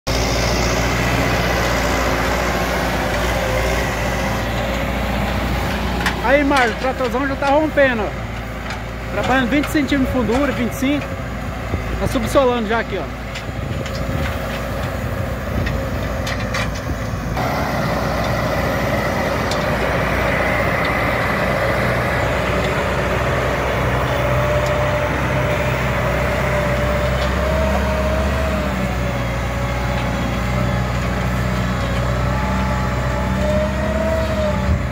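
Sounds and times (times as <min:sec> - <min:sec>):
tractor diesel engine under load: 0:00.0 - 0:34.9.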